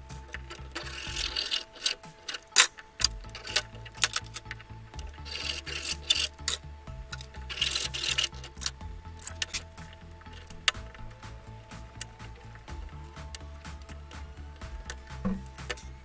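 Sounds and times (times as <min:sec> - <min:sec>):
background music: 0:00.0 - 0:16.0
sharp knock: 0:15.2 - 0:15.5.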